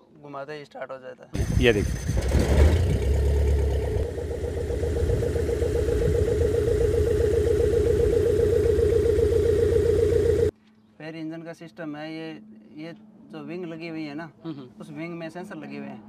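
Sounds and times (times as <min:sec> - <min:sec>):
aircraft engine and propeller idling: 0:01.4 - 0:10.5.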